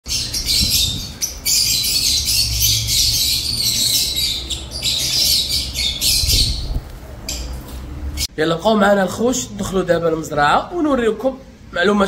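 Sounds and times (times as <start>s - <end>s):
lovebirds chirping: 0.0s - 8.3s.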